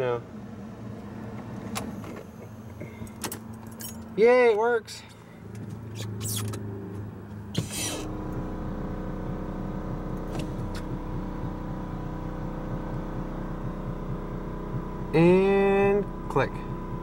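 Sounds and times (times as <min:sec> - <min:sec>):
vacuum pump running: 0:07.6 - 0:17.0.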